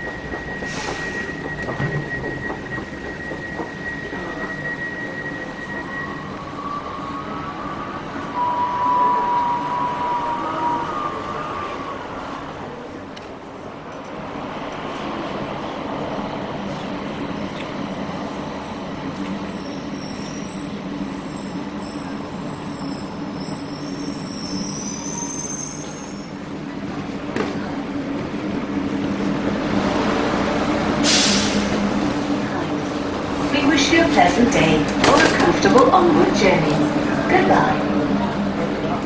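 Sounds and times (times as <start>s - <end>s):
wheel squeals: 0.0s - 11.6s, 19.4s - 26.4s
train hum: 0.0s - 39.0s.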